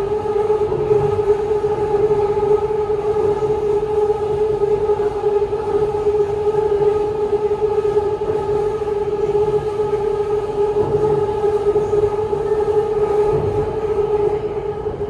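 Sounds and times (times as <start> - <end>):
train running: 0.0 - 15.0.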